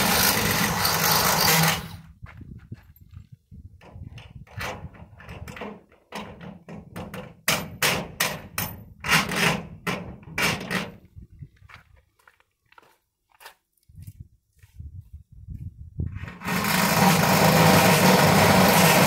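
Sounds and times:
cordless drill drilling into steel: 0.0s - 2.0s, 16.4s - 19.0s.

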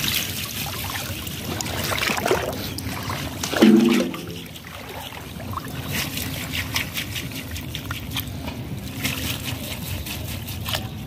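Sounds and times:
water splashing and trickling: 0.0s - 11.0s
low rumble: 3.4s - 4.8s.

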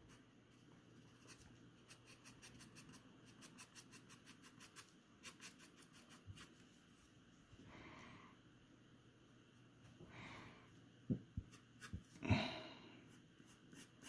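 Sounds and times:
pencil scratching on paper: 0.9s - 6.6s.

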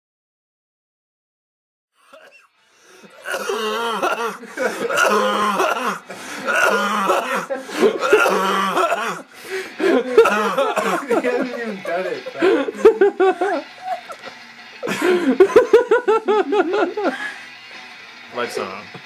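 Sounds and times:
man gagging: 3.1s - 13.2s
man laughing: 3.1s - 17.4s.

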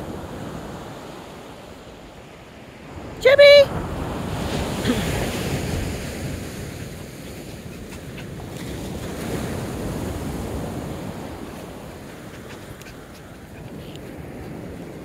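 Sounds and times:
ocean surf washing onto beach: 0.0s - 15.0s
wind on microphone: 3.6s - 15.0s.

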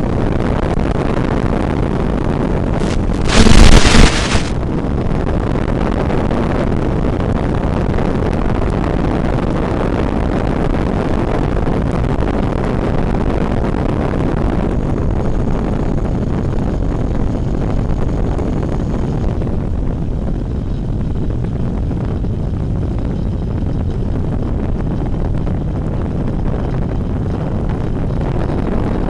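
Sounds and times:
rushing airflow noise: 2.4s - 6.0s
faint high whine: 2.6s - 5.0s.

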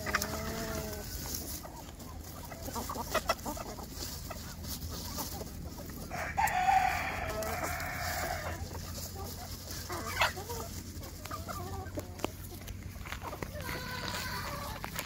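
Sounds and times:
hens clucking: 0.0s - 15.0s
rooster crowing: 6.1s - 8.5s.

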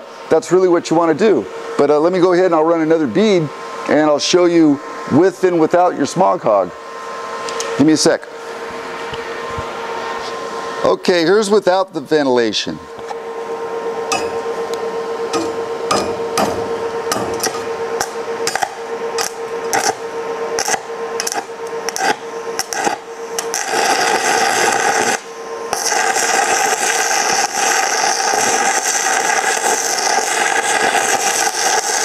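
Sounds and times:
welding arc crackling: 14.0s - 32.0s.

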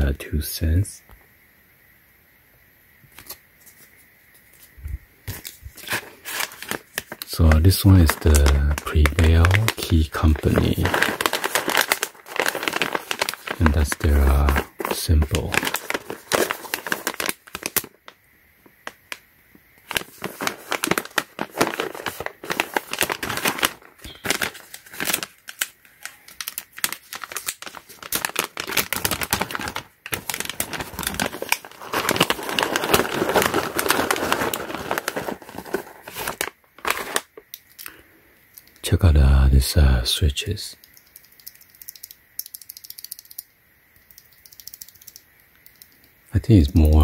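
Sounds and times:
foil pouch crinkling: 5.3s - 18.2s, 19.8s - 38.0s.

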